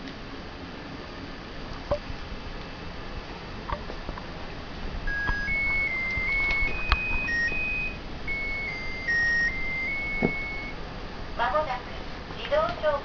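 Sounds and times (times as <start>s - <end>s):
heater chime beeping melody: 5.1s - 10.8s.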